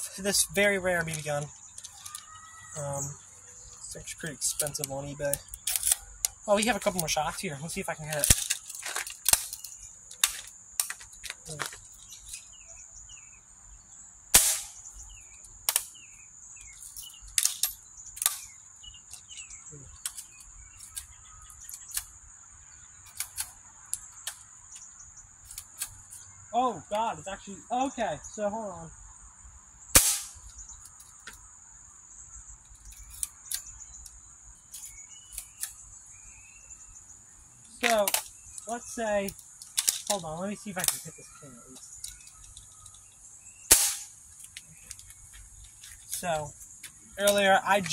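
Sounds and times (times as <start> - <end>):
small birds chirping: 0.0 - 47.9
bb gun metallic clicks and rattles: 4.6 - 7.1, 8.1 - 12.5, 14.4 - 16.0, 16.6 - 22.1, 37.8 - 38.7, 39.3 - 40.2, 42.0 - 46.3
gun clicks: 5.4 - 6.4
bb gun shot: 14.4 - 14.8, 30.0 - 30.4, 43.7 - 44.1.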